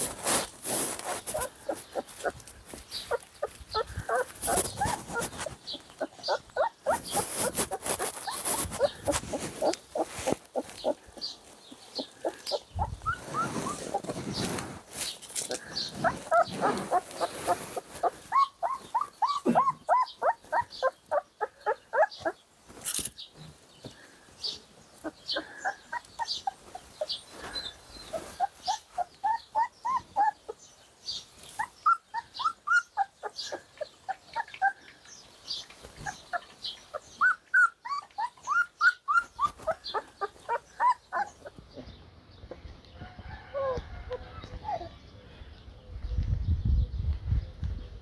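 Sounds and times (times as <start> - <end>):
puppies whimpering and squeaking: 0.8 - 14.6, 15.5 - 22.4, 25.0 - 30.6, 31.5 - 34.9, 35.8 - 41.9, 44.4 - 45.0.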